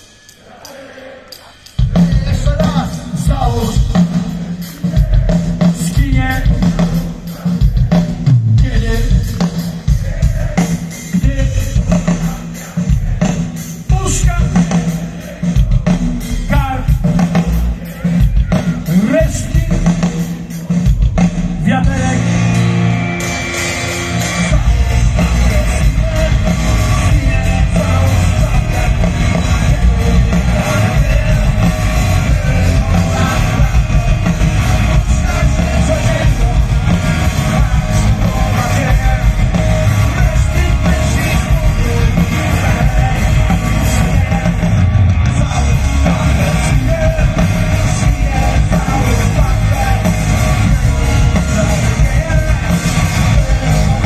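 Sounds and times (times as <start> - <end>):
live punk rock band: 0.0 - 54.0.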